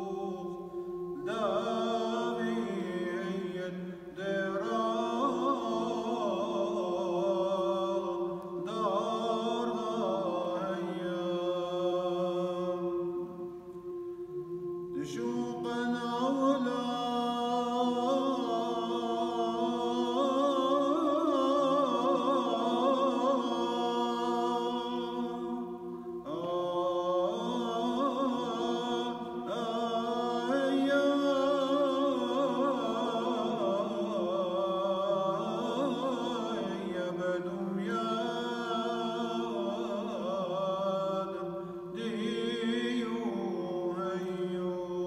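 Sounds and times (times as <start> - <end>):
man chanting a hymn: 0.0 - 13.1, 26.3 - 45.0.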